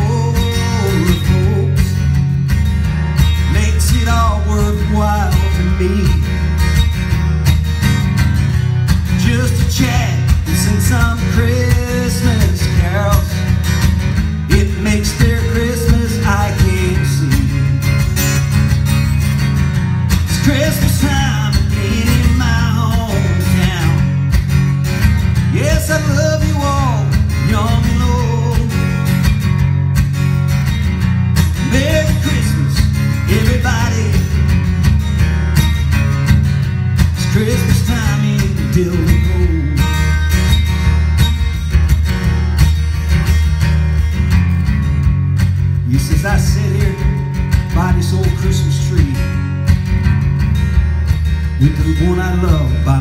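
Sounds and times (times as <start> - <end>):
man singing: 0.0 - 2.2, 3.3 - 6.5, 9.1 - 13.6, 14.4 - 18.0, 20.2 - 24.3, 25.5 - 29.2, 31.5 - 34.7, 37.1 - 40.3, 45.8 - 49.5, 51.5 - 53.0
acoustic guitar strumming: 0.0 - 53.0.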